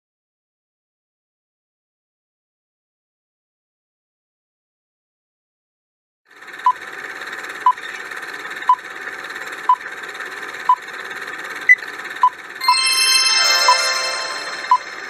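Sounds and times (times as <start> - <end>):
higher-pitched beep: 12.6 - 15.0
short beeps: 12.6 - 15.0.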